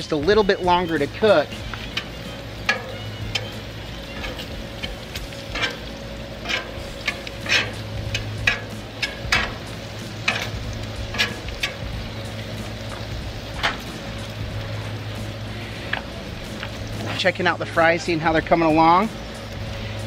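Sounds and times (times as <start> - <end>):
meat sizzling on a griddle: 0.0 - 20.0
metal tongs clicking and scraping: 1.2 - 12.0.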